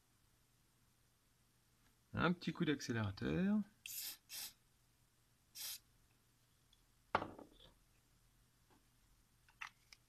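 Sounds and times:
aerosol can spraying: 3.8 - 4.6, 5.6 - 5.8.

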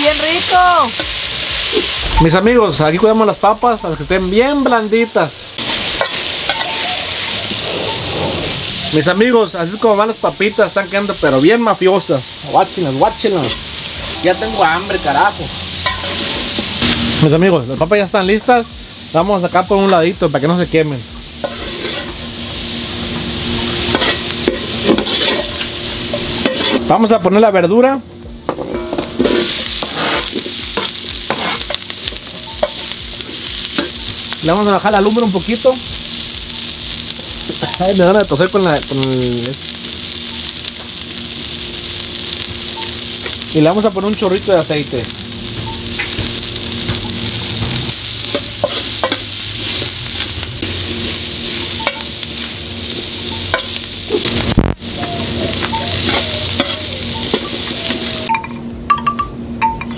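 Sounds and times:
vegetables sizzling in hot oil: 0.0 - 58.4
metal spatula scraping steel: 21.4 - 22.2, 23.8 - 26.9, 28.8 - 32.9.

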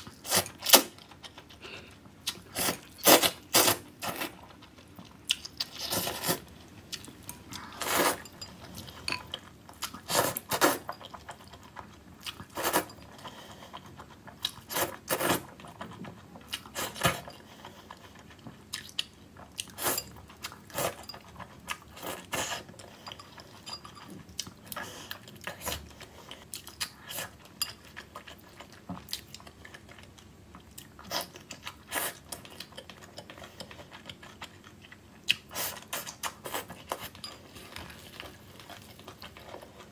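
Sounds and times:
person chewing and crunching: 0.0 - 39.9
person slurping noodles: 7.4 - 8.3.

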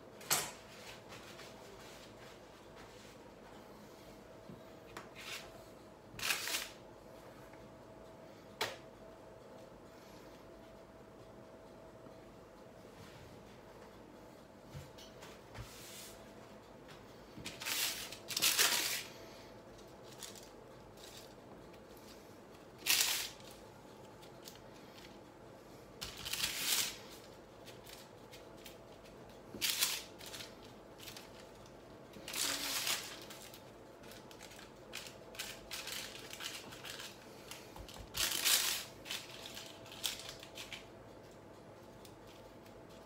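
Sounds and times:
baking parchment crinkling: 6.2 - 6.8, 17.4 - 25.2, 26.0 - 41.4.

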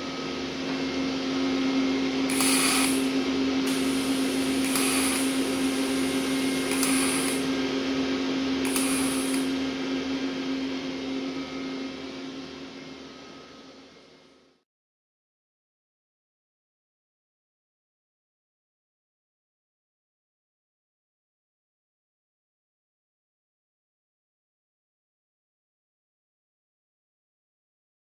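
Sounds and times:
welder hum and arc hiss: 0.0 - 14.6
sharp high hiss: 2.3 - 7.5, 8.7 - 9.6.

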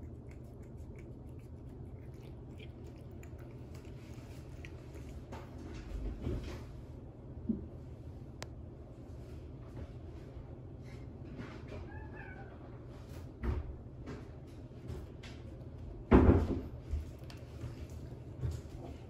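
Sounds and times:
cat chewing clicks: 0.0 - 6.0
cat meowing: 11.9 - 12.6.

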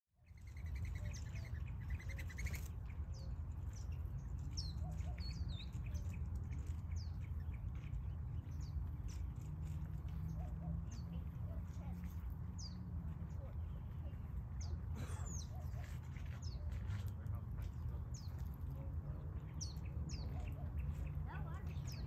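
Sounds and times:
small birds chirping: 0.1 - 22.0
bird trill: 0.2 - 9.8.

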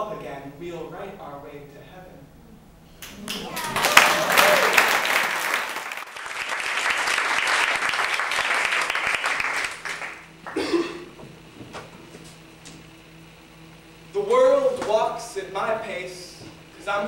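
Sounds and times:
audience applauding: 3.0 - 10.8.

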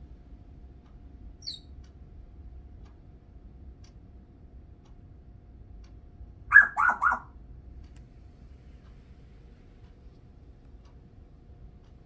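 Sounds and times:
parrot chirp: 1.4 - 1.7, 6.5 - 7.4
parrot mumbling: 6.5 - 7.3.

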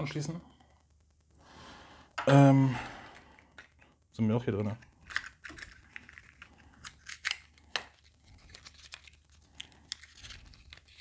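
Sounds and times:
packaging crinkling and rustling: 4.7 - 11.0.

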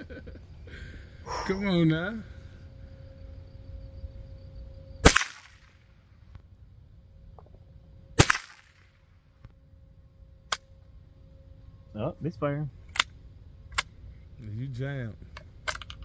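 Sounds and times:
rifle shots: 5.0 - 5.8, 8.2 - 9.0.

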